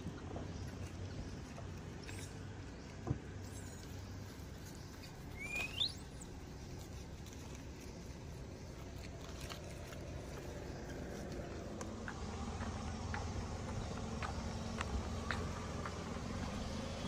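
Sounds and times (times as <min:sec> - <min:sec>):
rustles in dry leaves: 0:03.5 - 0:12.0.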